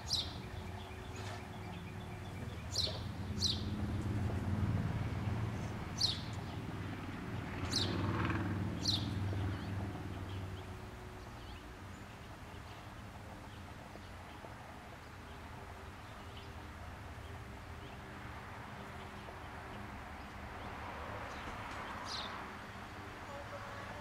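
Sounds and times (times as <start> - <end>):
bird chirping: 0.0 - 15.4
low steady hum: 0.0 - 21.1.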